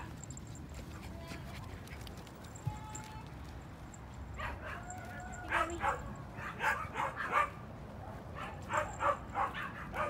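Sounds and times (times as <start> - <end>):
dog barking high-pitched: 4.4 - 7.6, 8.3 - 10.0.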